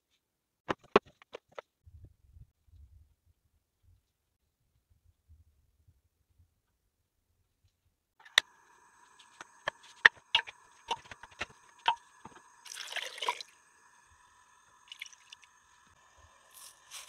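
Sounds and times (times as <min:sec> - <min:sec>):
water pouring: 0:08.2 - 0:17.0.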